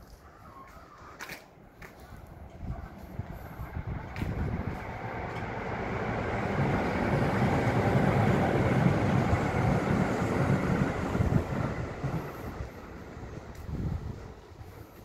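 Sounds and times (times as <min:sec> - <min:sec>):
electric train passing: 0:02.2 - 0:15.0.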